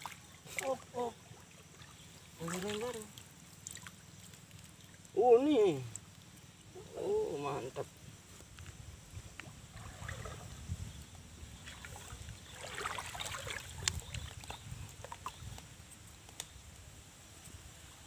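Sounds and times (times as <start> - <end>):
river water splashing by hands: 0.0 - 5.2, 9.4 - 10.7, 11.5 - 15.6.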